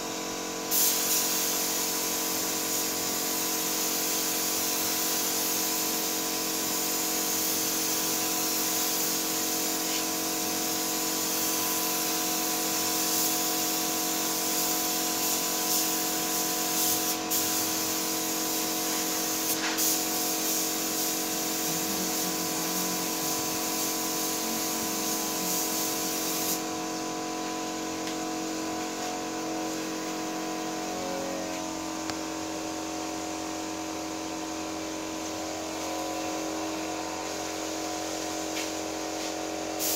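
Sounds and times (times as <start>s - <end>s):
paint spray gun hissing: 0.0s - 39.9s
steady machine hum: 21.3s - 37.6s.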